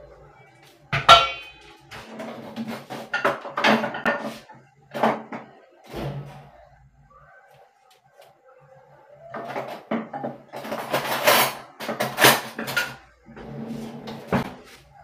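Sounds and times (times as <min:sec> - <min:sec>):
utensils clattering on counter: 0:01.0 - 0:05.4, 0:09.3 - 0:14.6.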